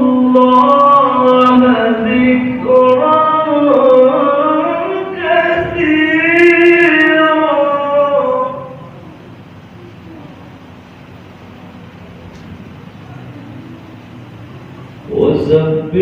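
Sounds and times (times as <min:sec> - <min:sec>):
person chanting melodically: 0:00.0 - 0:09.0.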